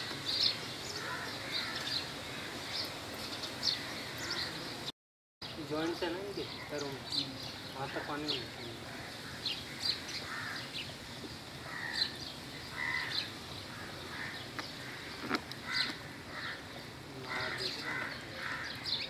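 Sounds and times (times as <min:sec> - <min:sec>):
birds calling: 0:00.0 - 0:19.0.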